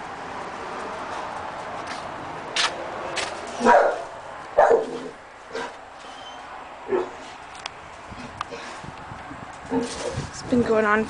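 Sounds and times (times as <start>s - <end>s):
dog barking: 3.6s - 5.7s, 6.9s - 7.2s.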